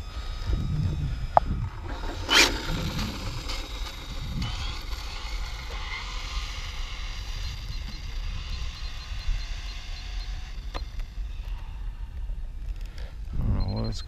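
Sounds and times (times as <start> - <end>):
wind rumble on microphone: 0.0 - 13.9
radio-controlled car speeding away: 0.6 - 11.3.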